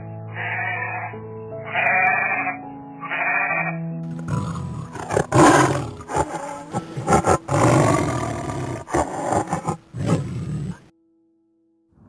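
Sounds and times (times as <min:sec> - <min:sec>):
tiger roaring: 0:04.1 - 0:10.9.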